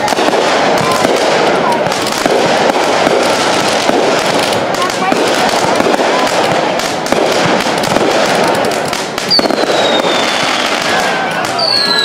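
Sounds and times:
fireworks crackling and popping: 0:00.0 - 0:12.0
high falling whistle: 0:11.6 - 0:12.0.

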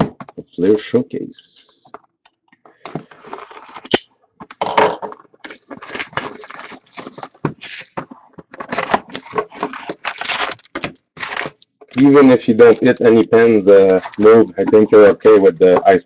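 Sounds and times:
packaging ripping and crinkling: 0:03.0 - 0:04.1, 0:05.4 - 0:15.1.

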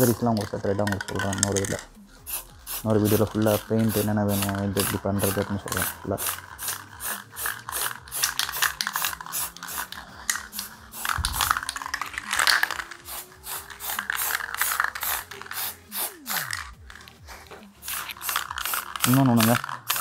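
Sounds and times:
spray paint can rattling: 0:00.0 - 0:20.0.

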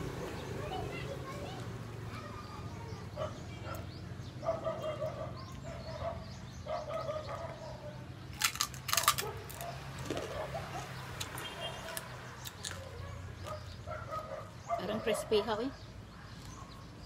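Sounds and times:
crunching of food being chewed: 0:08.3 - 0:14.3, 0:16.3 - 0:16.8.

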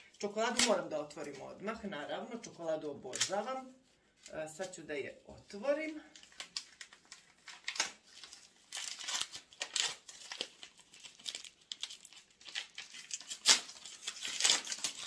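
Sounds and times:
wrapping paper tearing and crinkling: 0:05.6 - 0:15.0.

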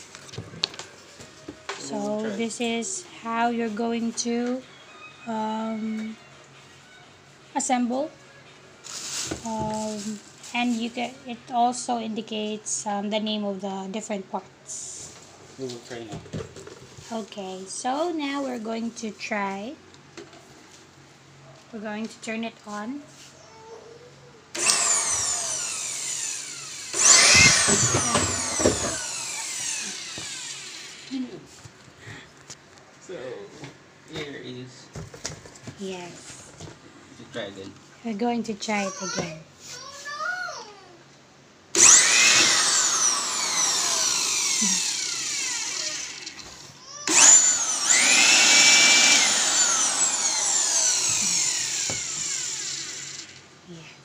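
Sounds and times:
electric air blower whining: 0:24.5 - 0:31.4, 0:41.7 - 0:53.4.

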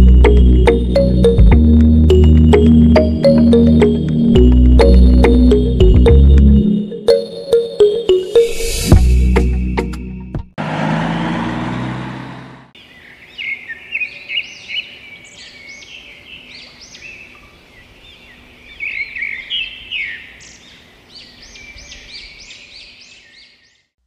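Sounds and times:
birds chirping: 0:12.7 - 0:23.9.

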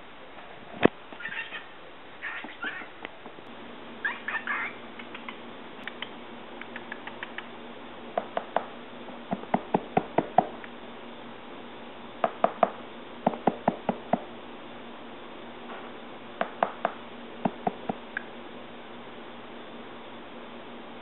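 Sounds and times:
cockatiel chirping: 0:01.2 - 0:02.9, 0:04.0 - 0:07.5.

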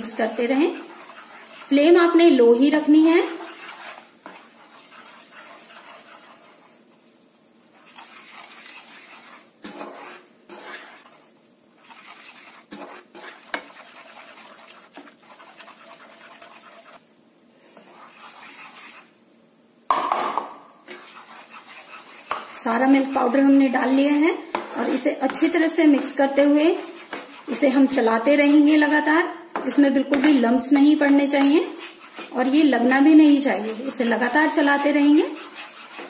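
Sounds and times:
wooden spatula scraping a pan: 0:00.0 - 0:17.0, 0:17.6 - 0:19.2, 0:20.8 - 0:36.0
plastic cup clattering on spatula: 0:19.9 - 0:20.6.

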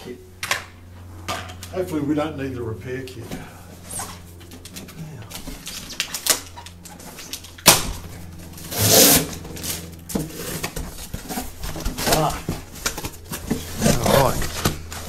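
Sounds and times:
cardboard and tape tearing: 0:03.8 - 0:15.0.

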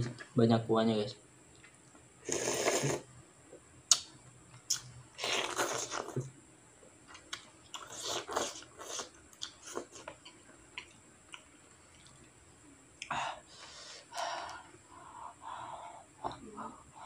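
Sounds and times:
person slurping noodles: 0:02.2 - 0:03.1, 0:05.2 - 0:06.2
wet mouth sounds: 0:02.3 - 0:03.0.

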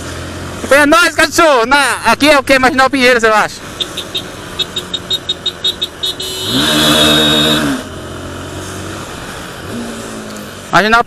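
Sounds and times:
motorcycle engine accelerating: 0:03.7 - 0:10.7.

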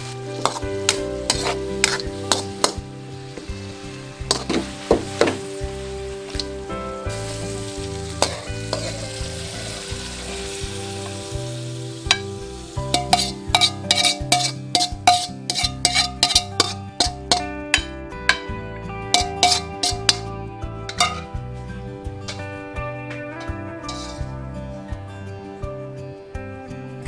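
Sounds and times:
metal spatula scraping a pan: 0:00.0 - 0:02.8, 0:03.4 - 0:05.4, 0:07.2 - 0:11.2, 0:12.9 - 0:17.6, 0:19.1 - 0:20.3, 0:20.9 - 0:21.3, 0:23.4 - 0:24.4
food sizzling in a wok: 0:00.0 - 0:18.4, 0:19.1 - 0:24.8
music with plucked notes: 0:00.0 - 0:27.0.

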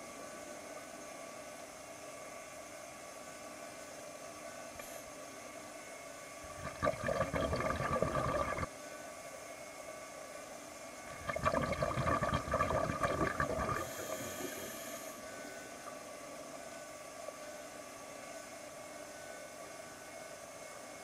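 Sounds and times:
underwater breath bubbling: 0:06.5 - 0:08.7, 0:11.1 - 0:15.1
regulator hiss: 0:11.1 - 0:15.3.

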